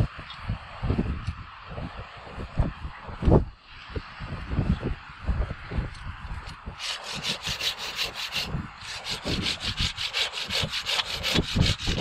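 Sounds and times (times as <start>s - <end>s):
hand saw cutting wood: 6.8s - 12.0s.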